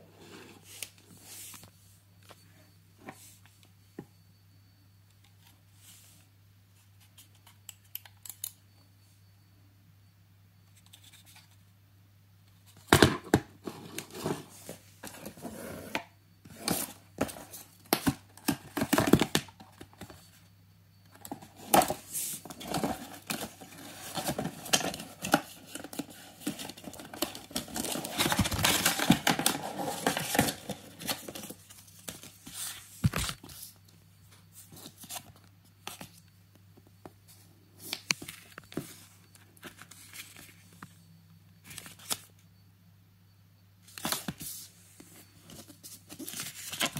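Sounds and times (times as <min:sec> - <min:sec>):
paper rustling and crinkling: 0:21.3 - 0:33.7, 0:44.0 - 0:46.9.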